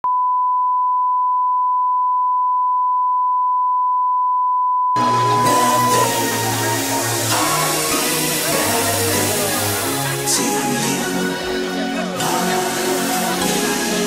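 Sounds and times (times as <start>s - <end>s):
steady test tone beep: 0.0s - 5.0s
music: 5.0s - 14.0s.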